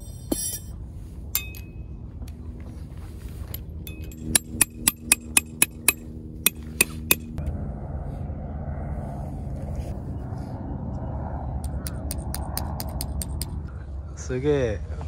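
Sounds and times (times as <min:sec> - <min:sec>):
metallic clinks: 0:00.0 - 0:01.9, 0:03.4 - 0:07.3
hammer striking metal tent peg: 0:03.9 - 0:07.4.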